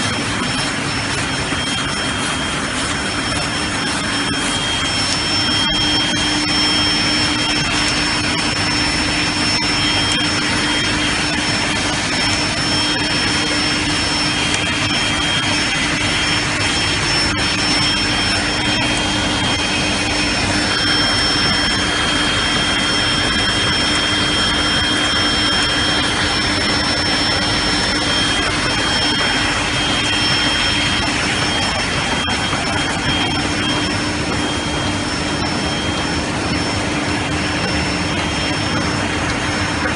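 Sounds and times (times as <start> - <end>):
printing press running: 0.0 - 39.9.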